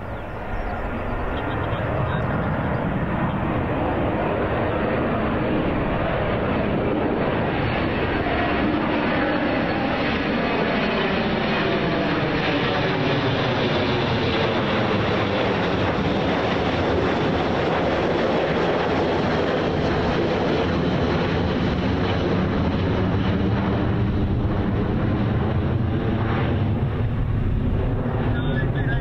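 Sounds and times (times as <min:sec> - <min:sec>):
jet engines passing overhead: 0:00.0 - 0:29.0.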